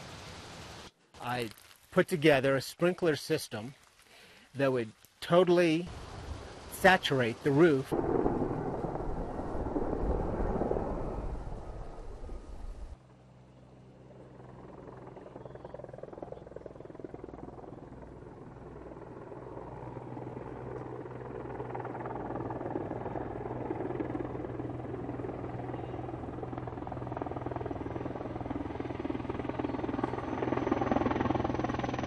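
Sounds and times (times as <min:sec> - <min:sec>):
helicopter flying overhead: 0:07.5 - 0:32.0.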